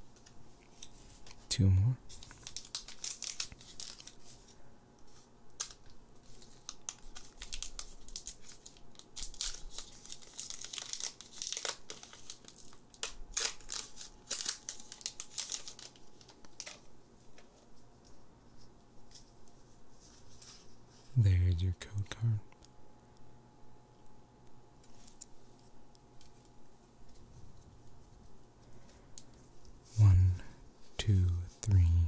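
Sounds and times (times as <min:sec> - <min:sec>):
foil wrapper crinkling and tearing: 0:02.1 - 0:16.9.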